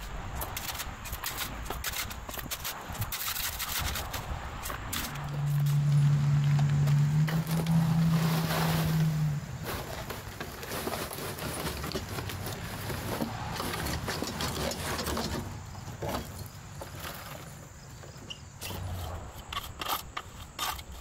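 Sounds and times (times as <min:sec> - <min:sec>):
rake scraping through soil: 0:00.0 - 0:21.0
soil and stones pouring onto gravel: 0:06.8 - 0:15.6.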